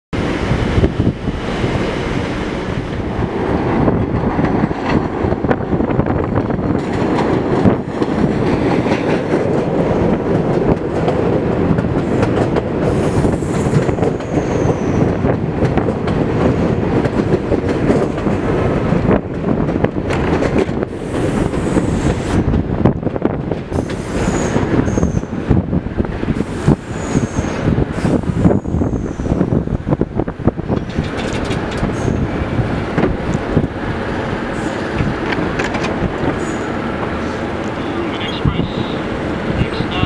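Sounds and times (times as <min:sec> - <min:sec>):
subway train rumble and clatter: 0:00.1 - 0:40.0
high wheel squeal: 0:14.2 - 0:15.1, 0:23.8 - 0:25.3, 0:26.9 - 0:27.6.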